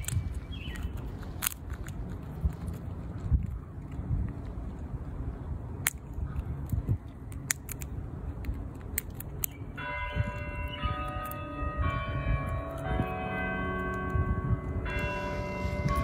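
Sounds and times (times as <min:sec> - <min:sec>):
squirrel gnawing food: 0:00.0 - 0:11.5
sharp clicks: 0:05.8 - 0:09.6
bell tones ringing: 0:09.8 - 0:16.0
low rumble: 0:11.6 - 0:16.0.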